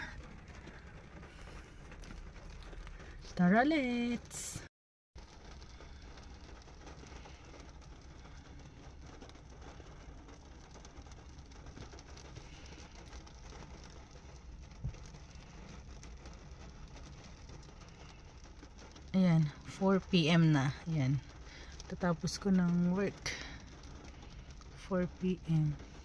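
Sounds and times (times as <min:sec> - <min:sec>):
low background rumble: 0:00.0 - 0:26.0.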